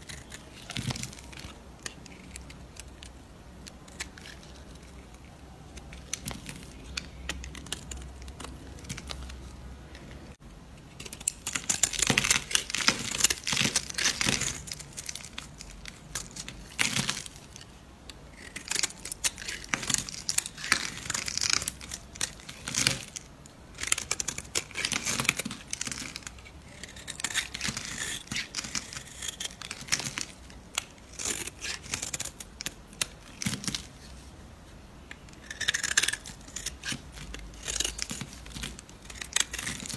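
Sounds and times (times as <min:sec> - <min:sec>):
knife shaving soap: 0:00.0 - 0:09.4, 0:18.4 - 0:33.9, 0:35.2 - 0:39.9.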